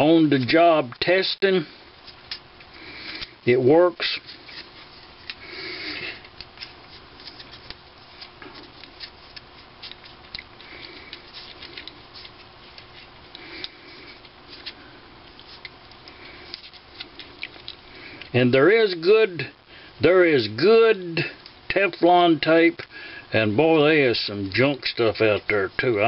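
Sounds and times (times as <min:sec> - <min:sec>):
handling clicks and crackles: 0:06.2 - 0:18.3.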